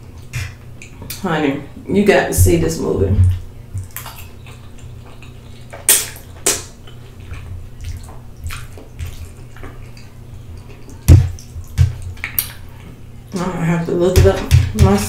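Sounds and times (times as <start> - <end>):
sharp mouth smacks: 5.7 - 6.8.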